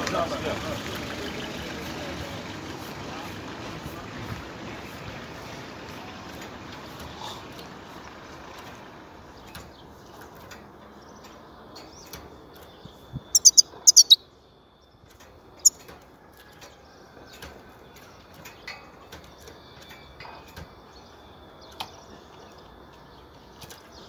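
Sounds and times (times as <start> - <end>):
soft bird twitters: 11.0 - 15.8
finch sharp high calls: 13.3 - 14.2.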